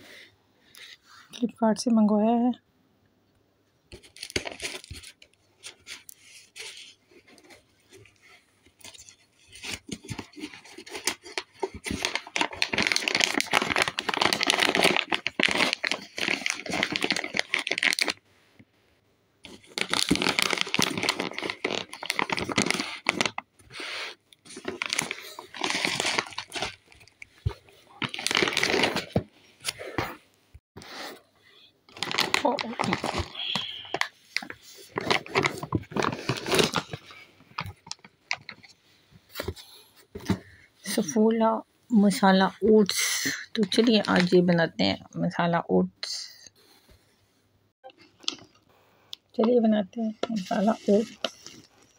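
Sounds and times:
plastic film crinkling: 4.0s - 18.2s, 19.5s - 30.1s, 31.9s - 38.8s, 43.2s - 44.4s, 50.1s - 51.9s
cardboard box tearing: 9.5s - 18.0s, 19.8s - 23.4s, 24.5s - 26.8s, 28.0s - 29.2s, 35.0s - 37.0s.

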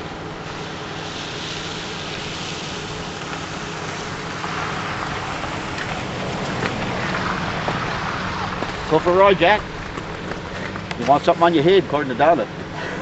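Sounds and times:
rushing hiss of air: 0.0s - 6.2s
hovercraft engine hum: 0.0s - 13.0s.

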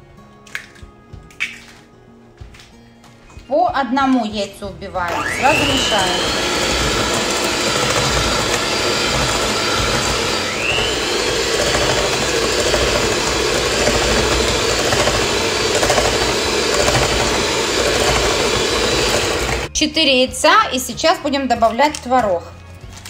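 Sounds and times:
beaters whisking in metal bowl: 5.1s - 19.7s
electric hand mixer whirring: 5.1s - 19.7s.

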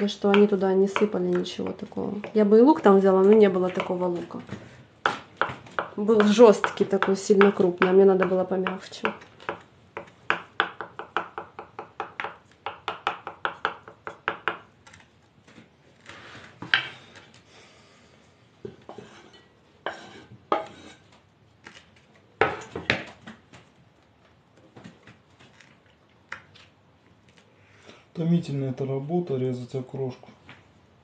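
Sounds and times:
knife chopping on wooden board: 0.0s - 2.5s, 5.0s - 14.7s.

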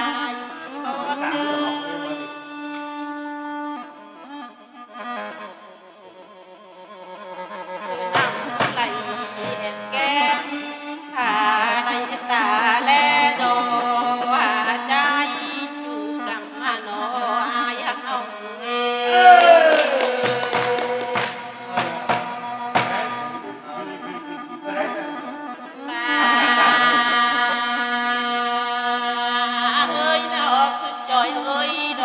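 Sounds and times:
bamboo flute long notes: 0.0s - 14.6s, 15.3s - 32.0s
person singing sliding phrases: 18.9s - 22.1s.

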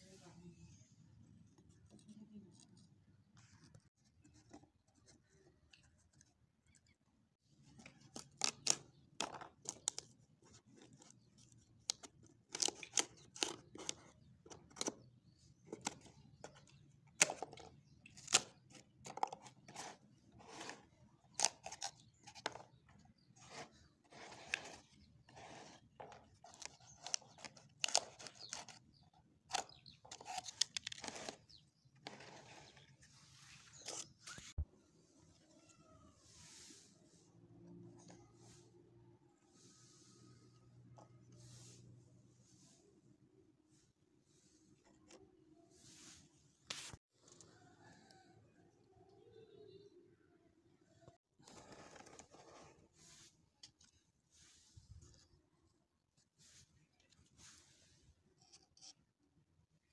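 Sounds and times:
fingers scraping cardboard: 19.1s - 28.8s.

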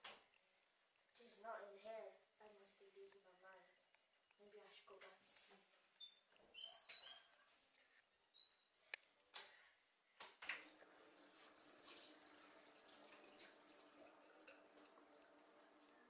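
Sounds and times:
faint steady hiss: 0.0s - 6.6s.

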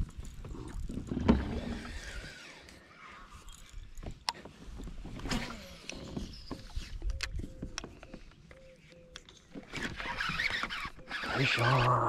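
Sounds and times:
fishing reel whirring: 1.5s - 3.9s, 9.7s - 12.0s.

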